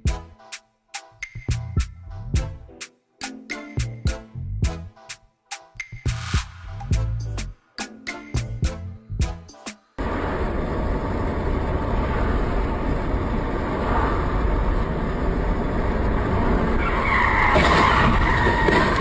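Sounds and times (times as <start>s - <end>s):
car road and engine noise: 10.0s - 19.0s
tyres skidding screech: 16.2s - 19.0s.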